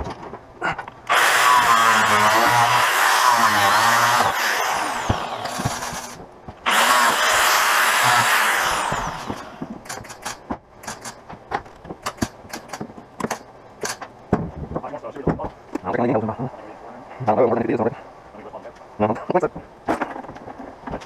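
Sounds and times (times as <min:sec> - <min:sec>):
grinder spinning down whine: 0:01.1 - 0:09.7
angle grinder cutting: 0:01.1 - 0:10.2
sharp clicks and knocks: 0:08.8 - 0:15.8.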